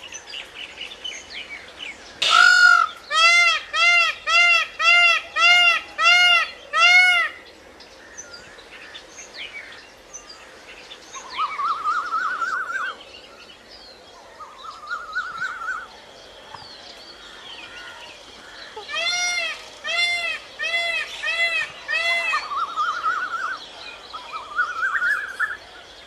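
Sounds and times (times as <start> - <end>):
peacock wailing: 2.2 - 7.4, 18.6 - 23.6.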